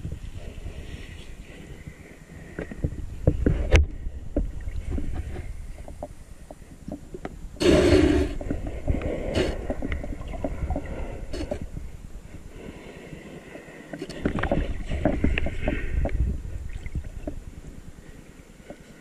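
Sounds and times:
muffled underwater rumble: 0:00.0 - 0:19.0
underwater clicks and knocks: 0:02.6 - 0:07.4, 0:09.6 - 0:11.7, 0:13.9 - 0:17.4.

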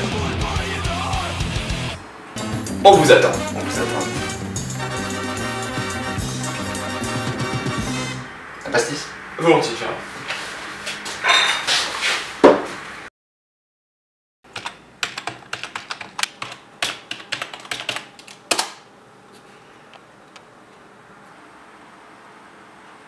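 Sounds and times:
computer keyboard typing: 0:14.5 - 0:18.7.

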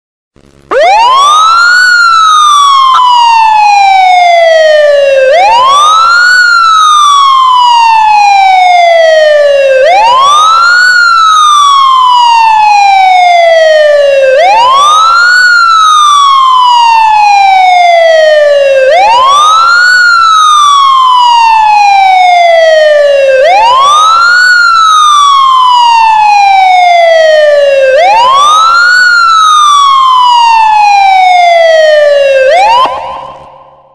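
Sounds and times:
siren wailing: 0:00.6 - 0:33.9.

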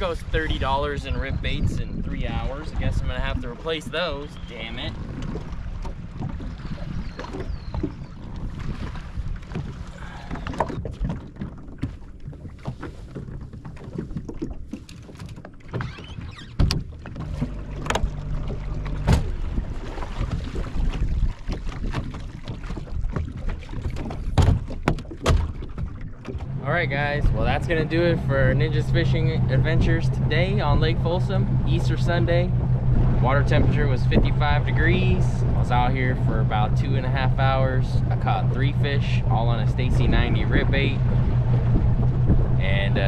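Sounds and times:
water lapping against boat hull: 0:00.0 - 0:43.0
wind rumbling on microphone: 0:00.0 - 0:43.0.

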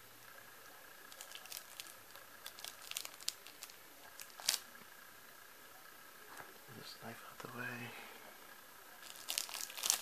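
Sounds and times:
plastic crinkling and clicking: 0:01.1 - 0:04.6, 0:09.0 - 0:10.0.

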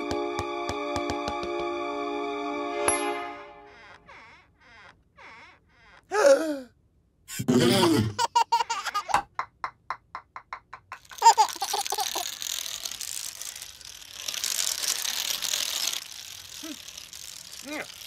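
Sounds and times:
cartoon baby laughing: 0:07.3 - 0:09.5, 0:10.2 - 0:12.6.

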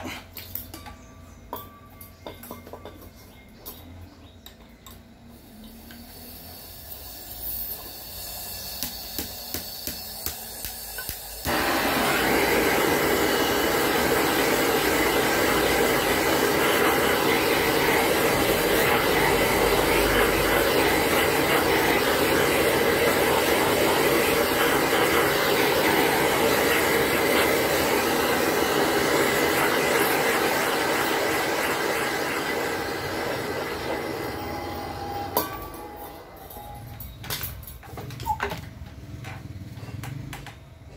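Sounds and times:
blowtorch hissing: 0:05.7 - 0:36.0.

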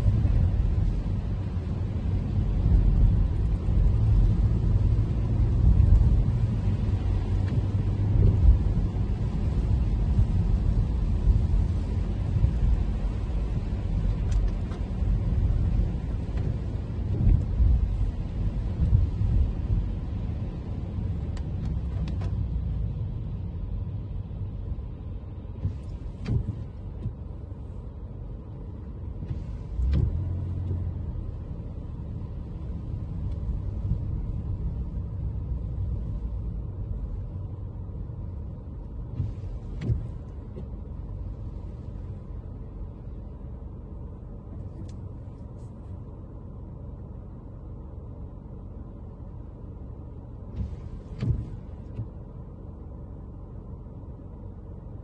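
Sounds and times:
tyres hissing on wet road: 0:00.0 - 0:23.5, 0:25.6 - 0:37.6, 0:39.1 - 0:43.4, 0:50.5 - 0:52.0
car road and engine rumble: 0:00.0 - 0:55.0
short thumps: 0:50.5 - 0:52.2.

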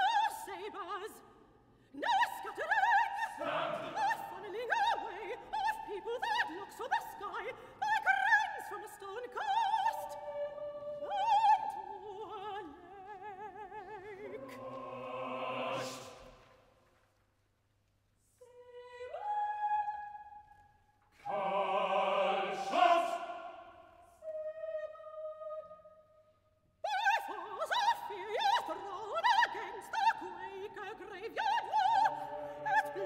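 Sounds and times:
soprano singing operatic line: 0:00.0 - 0:01.2, 0:01.9 - 0:16.2, 0:18.4 - 0:20.4, 0:21.2 - 0:25.9, 0:26.8 - 0:33.0
chamber choir singing: 0:02.0 - 0:16.6, 0:21.2 - 0:25.9, 0:26.9 - 0:33.0.

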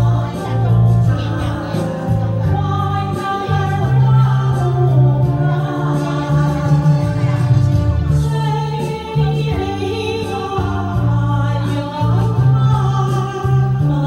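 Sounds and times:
backing track with bass line: 0:00.0 - 0:14.0
woman singing karaoke: 0:00.0 - 0:14.0.

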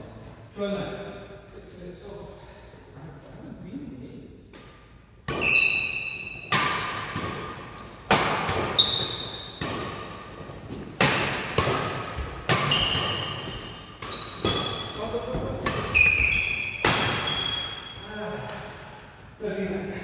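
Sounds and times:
rackets hitting shuttlecock: 0:04.5 - 0:18.7
sneakers squeaking on wooden floor: 0:05.3 - 0:06.5, 0:08.7 - 0:09.7, 0:12.1 - 0:18.0.

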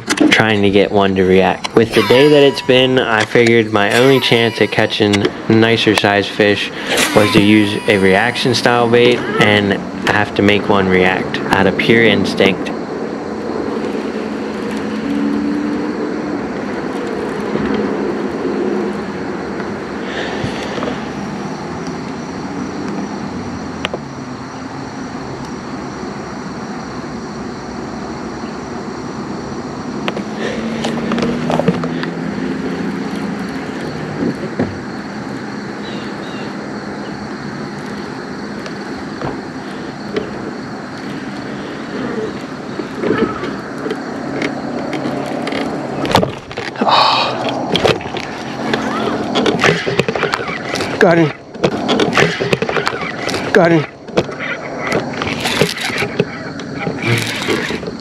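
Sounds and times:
higher tone: 0:01.8 - 0:05.6, 0:07.0 - 0:09.8
motor drone: 0:01.8 - 0:05.6, 0:06.4 - 0:10.2.

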